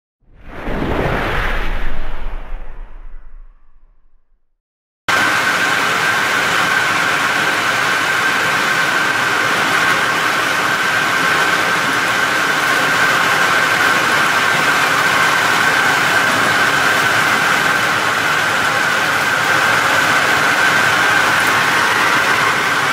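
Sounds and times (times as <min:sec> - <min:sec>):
constant high whine: 0:05.1 - 0:22.9.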